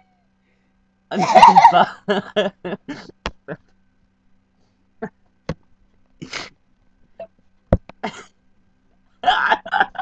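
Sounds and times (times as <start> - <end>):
woman laughing: 1.1 - 3.1, 9.2 - 10.0.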